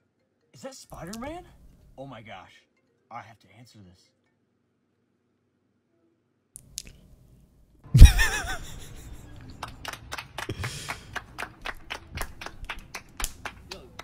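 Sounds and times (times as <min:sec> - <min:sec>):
rhythmic hand claps: 0:09.2 - 0:14.0.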